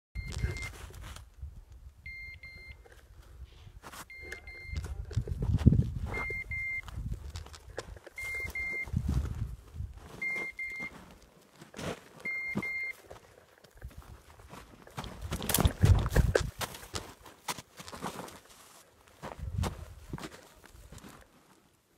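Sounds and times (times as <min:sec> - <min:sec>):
electronic double beeps: 0:00.2 - 0:00.7, 0:04.1 - 0:04.8, 0:06.1 - 0:06.8, 0:08.2 - 0:08.9
handling noise: 0:03.9 - 0:18.5.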